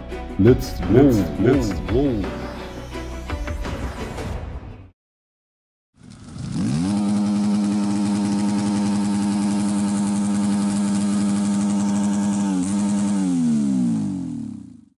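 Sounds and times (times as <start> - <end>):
motorcycle engine revving: 6.0 - 14.9.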